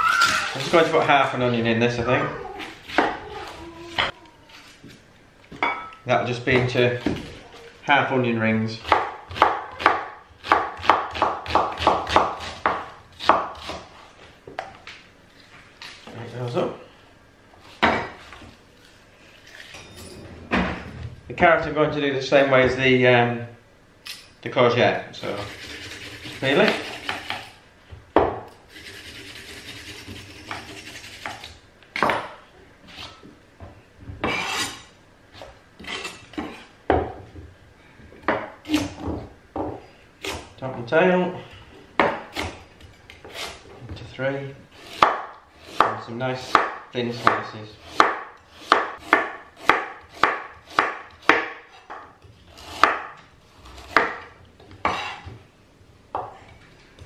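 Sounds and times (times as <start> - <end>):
knife slicing onion on wooden board: 8.8 - 14.0, 25.4 - 27.5, 44.8 - 51.9, 52.5 - 55.3.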